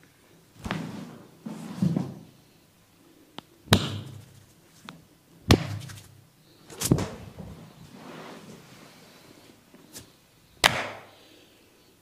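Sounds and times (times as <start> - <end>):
hands slapping a bare back: 3.7 - 4.4, 5.5 - 6.1, 10.6 - 11.1.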